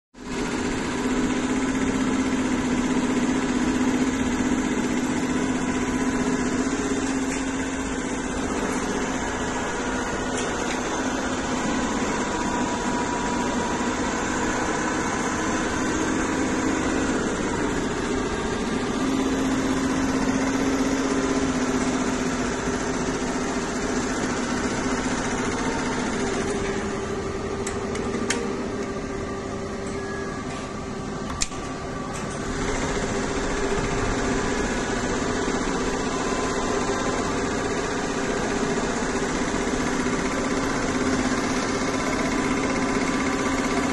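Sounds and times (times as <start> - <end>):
embroidery machine humming: 0.2 - 43.9.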